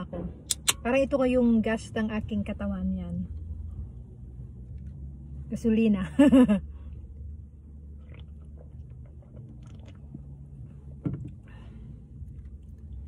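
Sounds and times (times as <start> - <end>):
steady low hum: 0.0 - 13.0
small mouth clicks: 0.5 - 0.8
chewing: 8.0 - 10.3.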